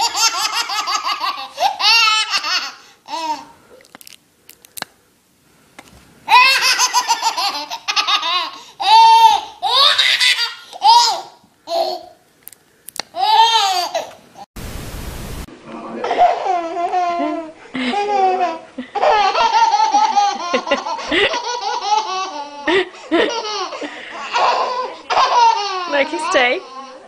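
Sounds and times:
baby laughing: 0.0s - 3.5s, 6.3s - 12.2s, 13.2s - 14.2s, 16.0s - 25.9s.

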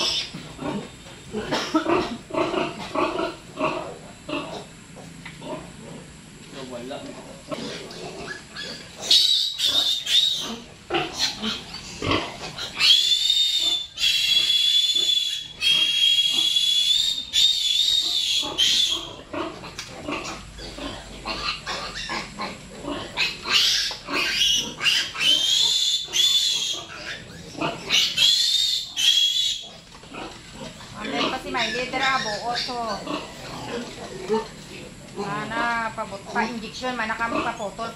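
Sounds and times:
piglet squealing: 7.7s - 19.3s, 20.1s - 29.8s, 31.0s - 33.8s.

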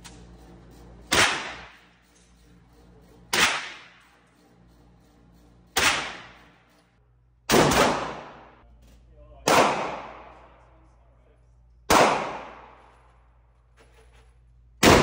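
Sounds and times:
handgun shots with echo: 1.1s - 1.7s, 7.5s - 8.6s, 9.4s - 10.4s, 11.9s - 12.8s.

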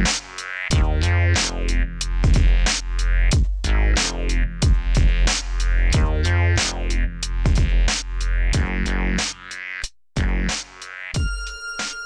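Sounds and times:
electronic music with drum-machine beat: 0.0s - 12.0s.

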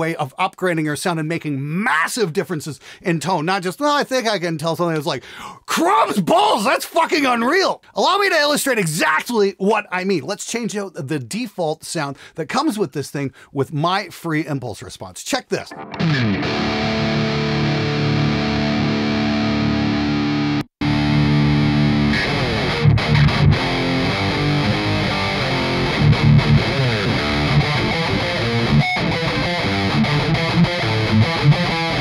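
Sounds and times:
distorted electric guitar: 15.7s - 32.0s.

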